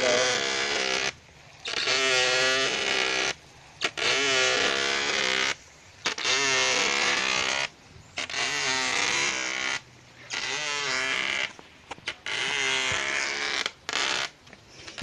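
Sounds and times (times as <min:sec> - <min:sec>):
person speaking: 0:00.0 - 0:00.8.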